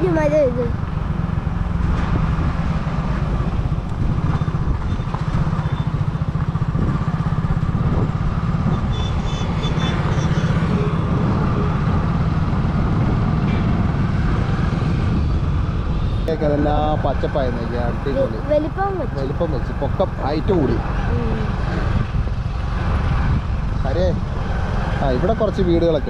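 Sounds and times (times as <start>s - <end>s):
motorcycle engine running: 0.0s - 26.0s
wind on microphone: 1.8s - 17.1s, 20.8s - 25.3s.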